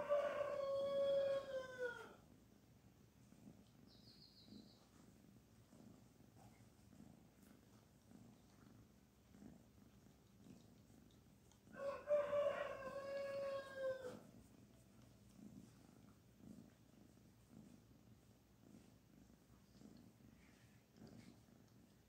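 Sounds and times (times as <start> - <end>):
kitten purring: 2.2 - 12.1, 12.7 - 22.0.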